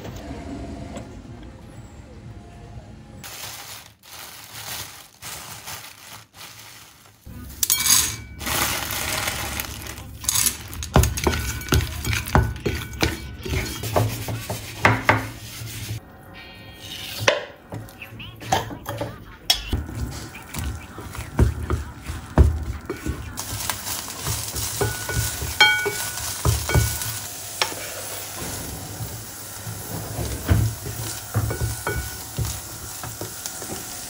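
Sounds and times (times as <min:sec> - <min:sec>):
dishes and utensils clinking: 0:07.5 - 0:16.0, 0:16.8 - 0:33.9.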